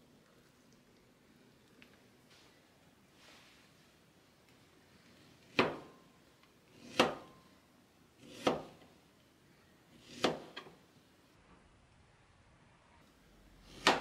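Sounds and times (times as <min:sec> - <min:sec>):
knife slicing strawberries: 0:06.7 - 0:07.3, 0:08.2 - 0:08.9, 0:10.0 - 0:10.7, 0:13.6 - 0:14.0.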